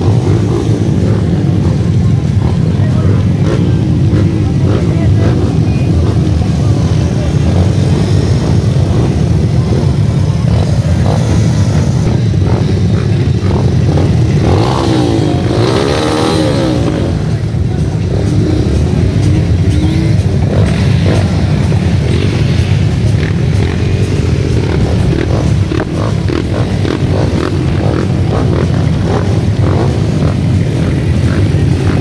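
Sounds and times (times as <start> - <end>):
dirt bikes idling: 0.0 - 32.0
engine revving: 0.0 - 32.0.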